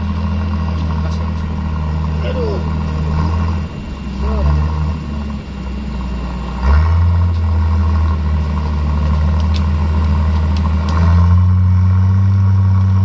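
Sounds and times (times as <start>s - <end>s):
truck engine under load: 0.0s - 13.0s.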